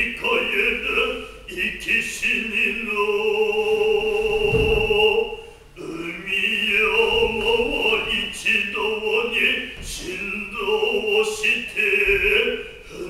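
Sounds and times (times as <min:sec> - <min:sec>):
man chanting: 0:00.0 - 0:13.0.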